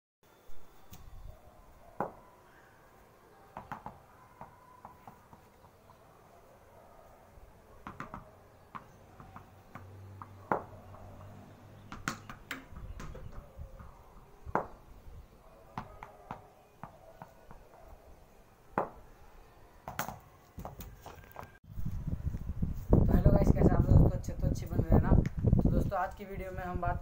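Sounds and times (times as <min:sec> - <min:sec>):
tennis ball knocking on bat and floor: 0:02.0 - 0:02.2, 0:03.6 - 0:05.8, 0:07.8 - 0:13.5, 0:14.5 - 0:14.8, 0:15.8 - 0:17.6, 0:18.8 - 0:19.0.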